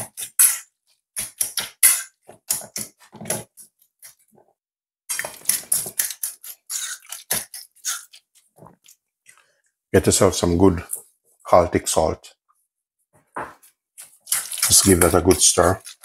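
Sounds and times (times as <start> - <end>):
fork scraping metal bowl: 5.1 - 8.2, 14.0 - 16.0.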